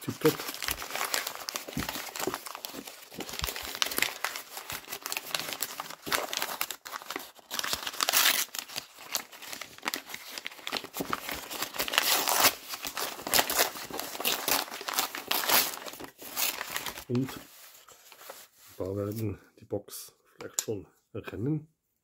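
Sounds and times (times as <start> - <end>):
paper crumpling: 0.0 - 18.8
paper tearing: 0.1 - 17.2.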